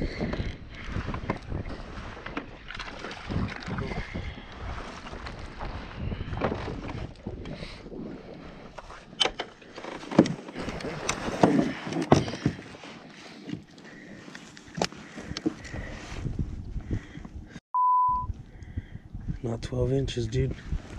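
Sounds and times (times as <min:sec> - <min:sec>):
wind buffeting microphone: 0:00.0 - 0:08.7, 0:15.1 - 0:17.6, 0:18.2 - 0:20.9
water lapping against kayak: 0:00.0 - 0:17.6
clicks and knocks of fishing gear: 0:00.2 - 0:07.6, 0:08.7 - 0:16.0.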